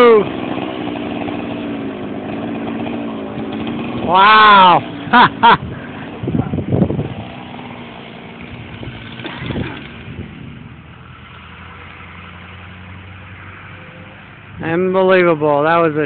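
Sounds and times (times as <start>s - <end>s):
motor idling: 0.0s - 12.5s
person whooping: 4.1s - 4.8s.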